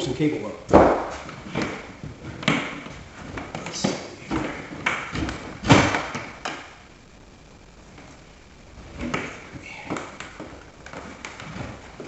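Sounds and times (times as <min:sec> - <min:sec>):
cables knocking against wall: 0:00.7 - 0:06.7.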